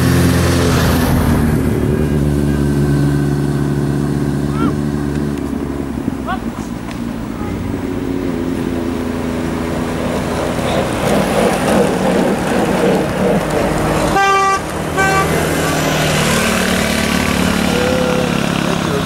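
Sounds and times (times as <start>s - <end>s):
vehicles passing on road: 0.0s - 19.0s
vehicle horn tooting: 14.1s - 15.9s.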